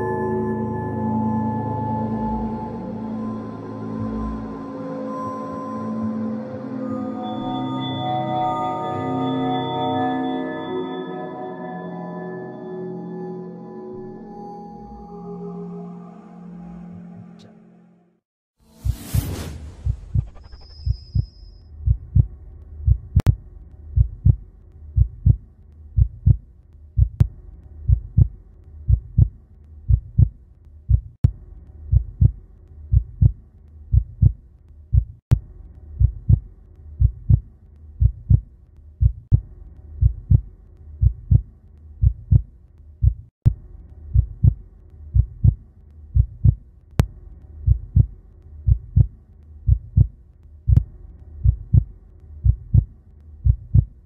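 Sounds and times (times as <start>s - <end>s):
heartbeat thumps: 18.8s - 54.0s.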